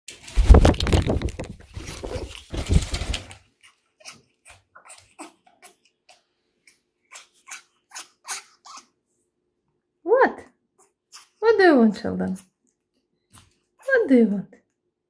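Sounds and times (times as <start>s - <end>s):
rustling and bumping on microphone: 0.1s - 3.4s.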